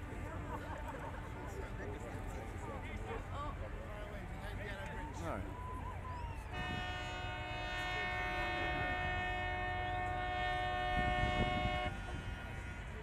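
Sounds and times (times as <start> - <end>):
boat horn blast: 6.4 - 13.0.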